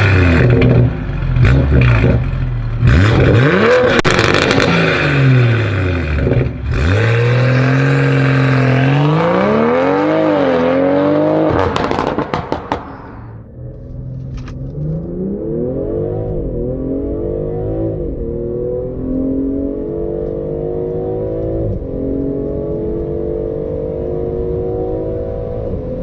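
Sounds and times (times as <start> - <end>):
car engine revving: 0.0 - 26.0
exhaust crackles and pops: 3.1 - 4.8, 11.6 - 13.0.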